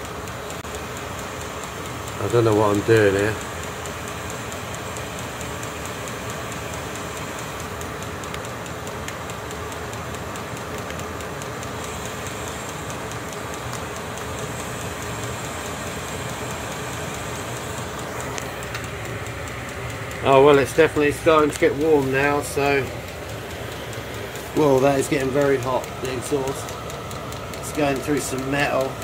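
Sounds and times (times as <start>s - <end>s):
faint regular ticking: 0.0s - 29.0s
heater fan whirring: 0.0s - 29.0s.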